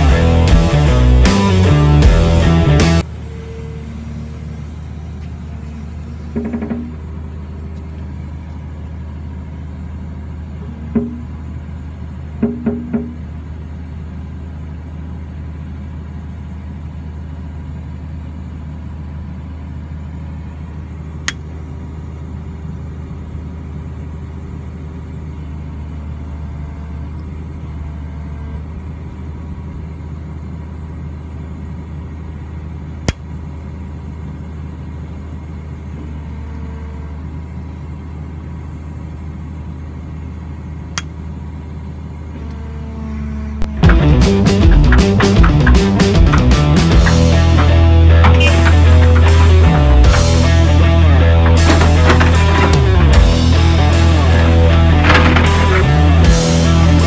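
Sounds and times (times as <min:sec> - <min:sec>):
diesel engine low drone: 0:00.0 - 0:57.0
faint higher tone: 0:03.1 - 0:05.0.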